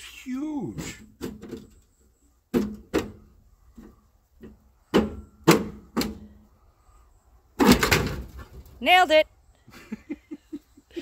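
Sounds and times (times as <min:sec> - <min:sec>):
sharp metal clunks and knocks: 0:01.0 - 0:01.8, 0:02.5 - 0:06.3, 0:07.6 - 0:08.5.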